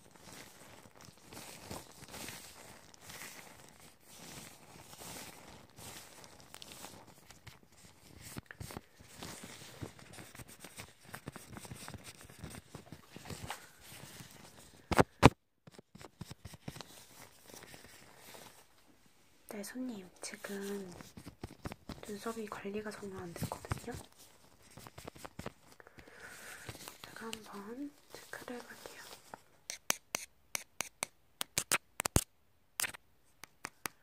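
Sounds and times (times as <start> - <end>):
gloved hands rustling: 0.0 - 34.0.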